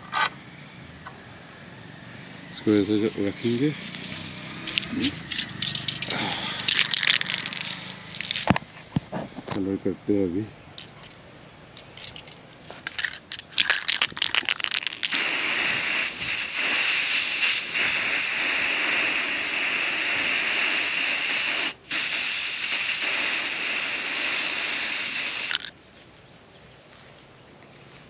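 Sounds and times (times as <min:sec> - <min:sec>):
spray can hissing: 0:03.9 - 0:08.5, 0:12.9 - 0:25.7
spray can rattling: 0:04.7 - 0:08.6, 0:10.8 - 0:11.2, 0:11.8 - 0:25.7.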